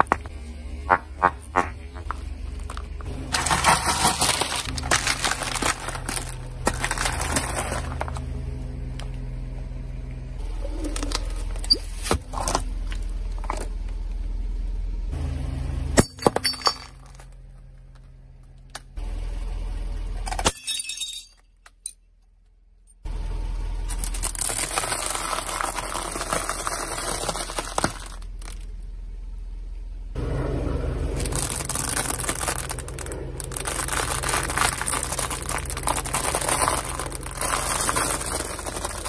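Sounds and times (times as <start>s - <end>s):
low engine hum: 0.0s - 39.0s
tyre crushing brittle objects: 0.9s - 8.3s, 23.9s - 28.7s, 31.2s - 39.0s.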